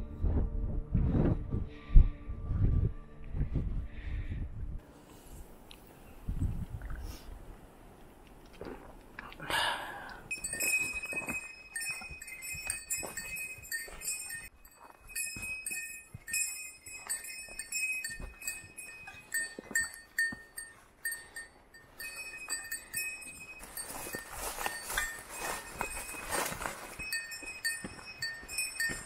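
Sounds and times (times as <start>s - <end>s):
footsteps on forest trail: 10.3s - 29.0s
small bell jingling: 10.3s - 29.0s.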